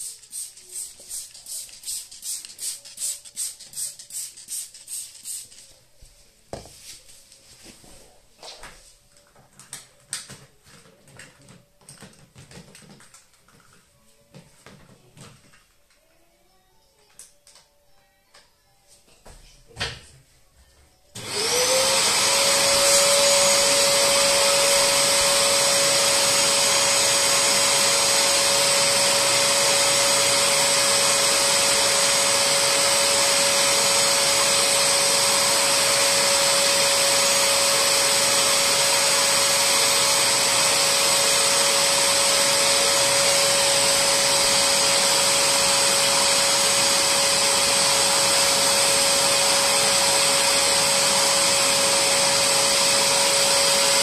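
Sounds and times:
cleaner suction motor whine: 21.2s - 54.0s.

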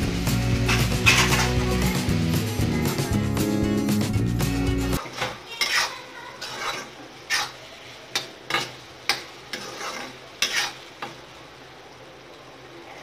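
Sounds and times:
faint sizzle: 0.0s - 13.0s
spoon scraping frying pan: 0.6s - 1.8s, 5.0s - 11.2s.

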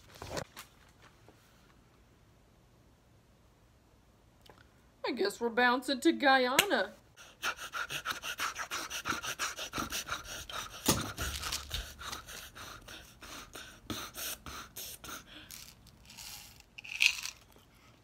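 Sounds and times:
quick shallow panting: 7.2s - 15.5s.

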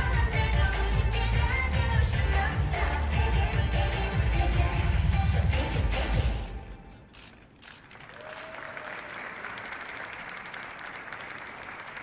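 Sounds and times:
pop music: 0.0s - 6.6s
audience applause: 7.8s - 12.0s.

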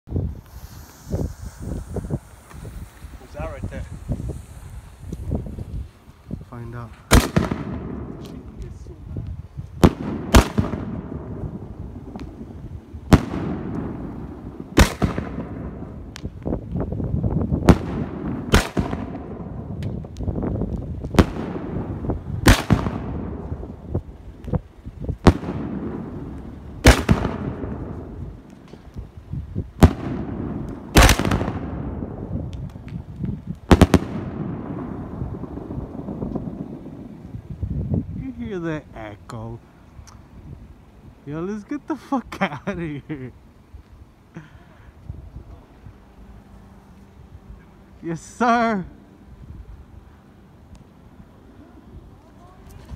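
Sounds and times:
rolling echo: 6.9s - 8.7s
firework shells booming: 7.0s - 8.8s, 9.8s - 16.4s, 17.5s - 24.0s, 25.1s - 28.8s, 29.8s - 33.0s, 33.6s - 37.2s.

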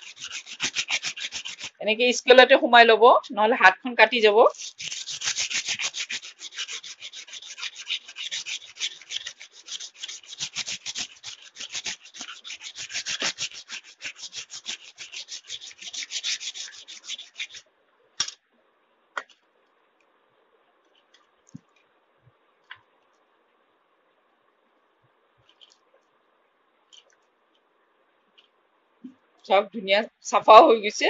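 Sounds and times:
stone scraping scissor blade: 0.0s - 1.8s, 4.5s - 17.6s.

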